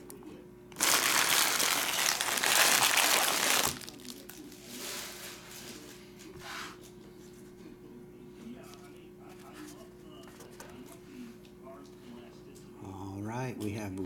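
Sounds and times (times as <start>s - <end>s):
foil wrappers crinkling: 0.8s - 5.2s.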